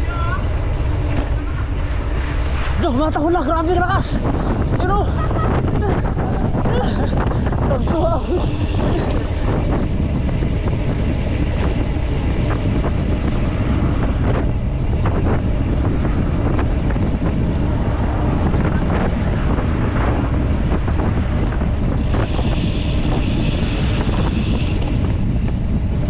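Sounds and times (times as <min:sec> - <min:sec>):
wind buffeting microphone: 0:00.0 - 0:26.0
bike clicks and rattles: 0:08.8 - 0:26.0.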